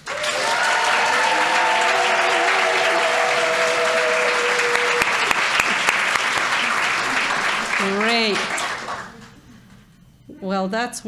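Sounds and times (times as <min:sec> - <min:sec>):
people cheering: 0:00.0 - 0:09.3
audience applauding: 0:00.0 - 0:09.4.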